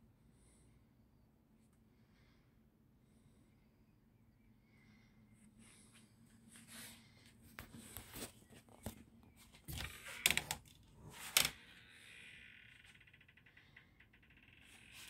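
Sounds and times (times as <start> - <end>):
rustling handling sounds: 6.4 - 10.2.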